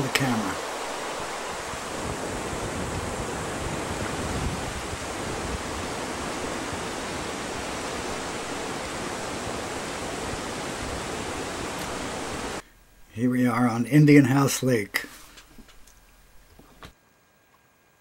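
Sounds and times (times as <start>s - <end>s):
whitewater rapids roaring: 0.0s - 12.6s.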